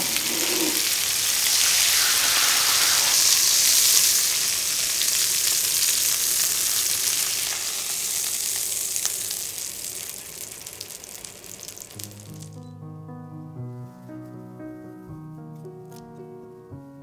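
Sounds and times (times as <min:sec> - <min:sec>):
meat sizzling in frying pan: 0:00.0 - 0:12.6.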